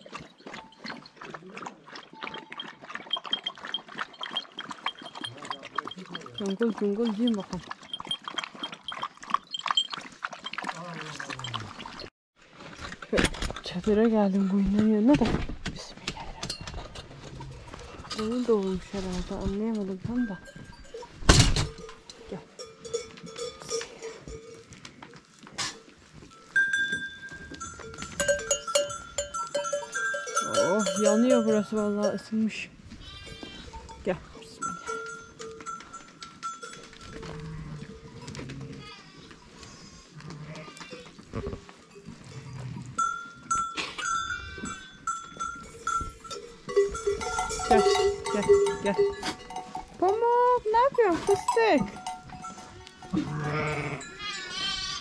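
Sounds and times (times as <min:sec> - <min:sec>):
sheep bells clanking: 0:02.2 - 0:12.1, 0:13.6 - 0:15.1, 0:16.4 - 0:38.4, 0:40.8 - 0:55.0
sheep bleating: 0:33.0 - 0:33.8, 0:38.6 - 0:41.1, 0:52.8 - 0:55.0.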